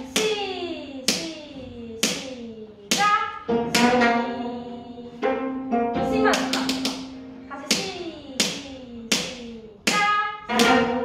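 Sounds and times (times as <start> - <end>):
plucked zither strings: 3.5 - 7.8, 10.5 - 11.0.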